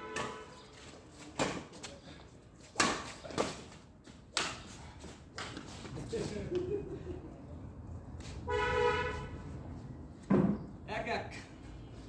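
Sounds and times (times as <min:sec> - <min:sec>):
racket smacking shuttlecock: 0:02.6 - 0:05.8.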